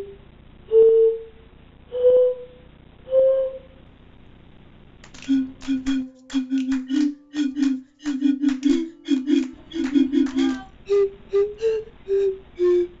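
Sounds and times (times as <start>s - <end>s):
bottle panpipe tune: 5.1s - 13.0s.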